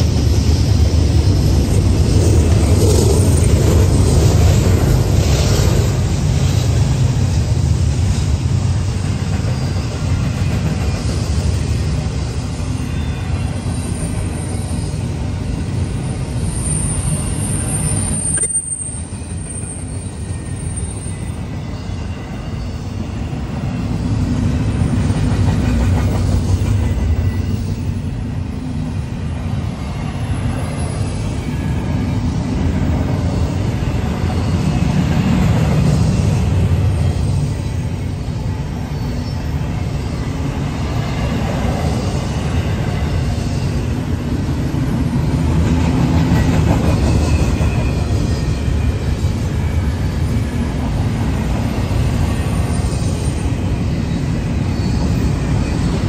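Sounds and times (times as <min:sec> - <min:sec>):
freight train wheels rumbling on rail: 0:00.0 - 0:56.0
high wheel squeal: 0:08.8 - 0:25.1, 0:26.3 - 0:28.1, 0:29.9 - 0:44.2, 0:46.4 - 0:50.8, 0:51.6 - 0:56.0.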